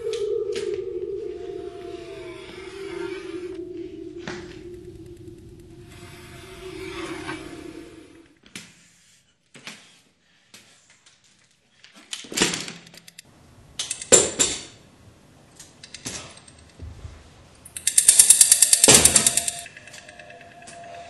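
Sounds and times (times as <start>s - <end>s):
fast cymbal rattle: 17.7s - 21.0s
metallic percussive crashes: 17.7s - 21.0s.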